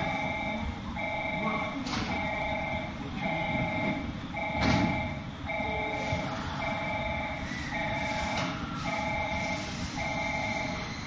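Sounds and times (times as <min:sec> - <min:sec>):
electronic warning tone: 0:00.0 - 0:11.0.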